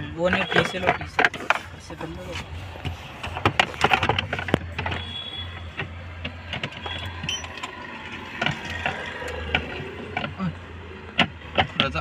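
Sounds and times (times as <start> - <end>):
short squeak: 6.8 - 7.6.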